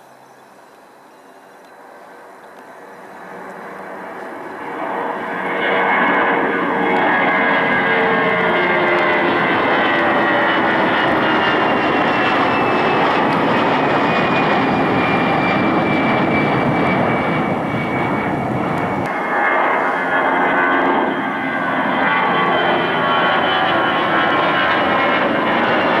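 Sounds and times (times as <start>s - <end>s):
jet airliner engines at takeoff: 0.0s - 26.0s.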